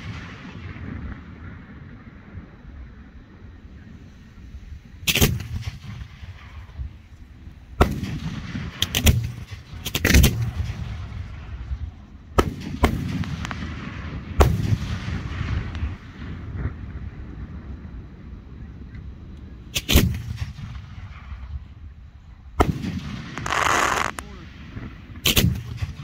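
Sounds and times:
firework shells booming: 0:05.0 - 0:17.9, 0:19.7 - 0:21.8, 0:22.5 - 0:26.0.

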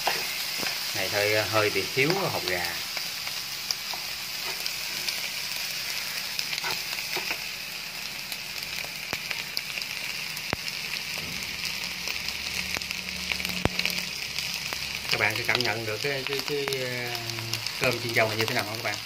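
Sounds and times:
rice sizzling in a frying pan: 0:00.0 - 0:19.0.

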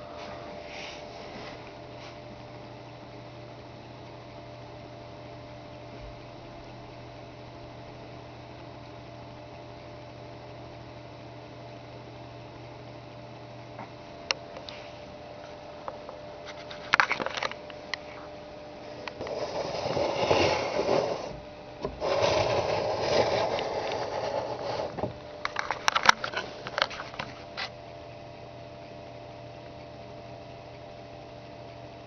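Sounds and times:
electrical hum: 0:00.0 - 0:32.0
rubbing and scraping on desk: 0:19.2 - 0:27.7.

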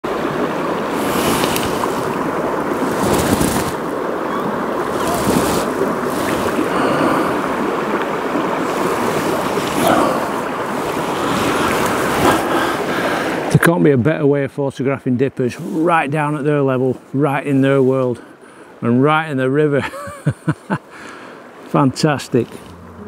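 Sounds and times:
river flowing over rocks: 0:00.1 - 0:13.5.

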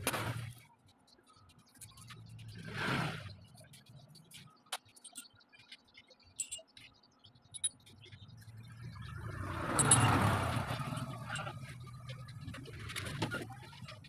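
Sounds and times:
vehicle engine passing: 0:08.5 - 0:13.2.

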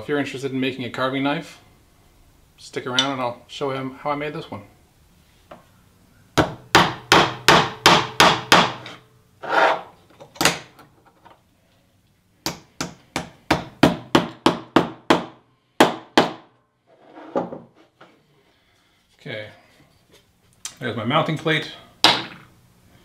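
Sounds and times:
hammer striking nails into wood: 0:06.4 - 0:08.9, 0:12.4 - 0:16.5, 0:22.0 - 0:22.4.

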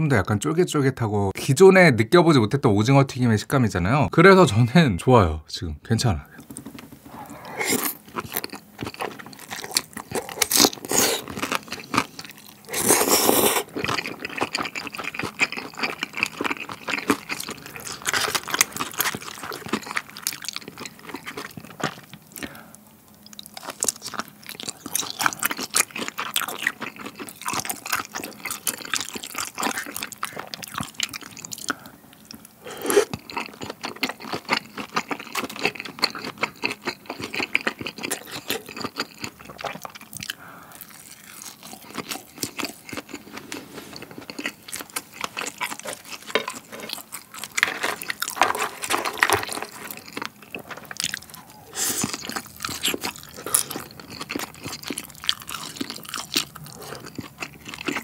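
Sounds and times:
noodles slurped: 0:06.6 - 0:21.3
chewing with wet mouth clicks: 0:07.7 - 0:43.4, 0:49.5 - 0:58.0.

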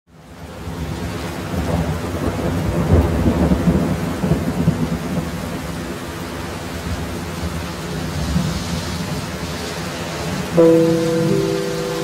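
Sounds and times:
heavy rain falling: 0:00.2 - 0:12.0.

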